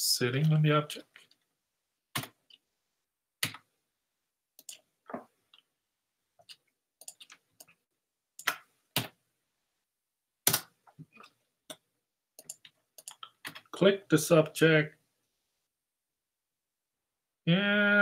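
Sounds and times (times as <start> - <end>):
computer mouse and keyboard clicks: 6.4 - 7.8, 12.4 - 13.7.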